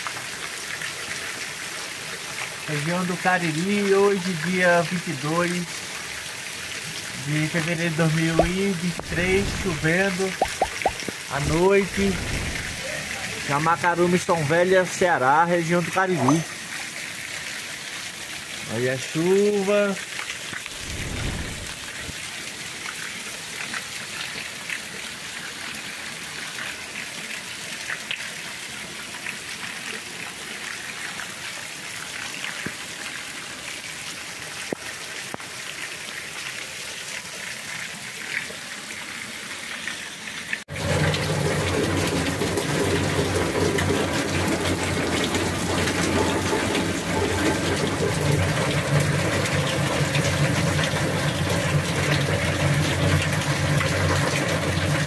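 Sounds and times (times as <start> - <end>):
water gushing onto plastic tank: 0.0 - 28.2, 40.4 - 55.0
rain falling on street: 0.0 - 55.0.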